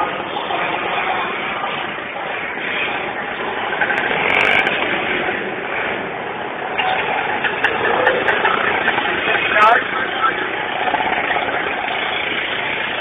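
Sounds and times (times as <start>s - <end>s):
vehicle engines running: 0.0s - 13.0s.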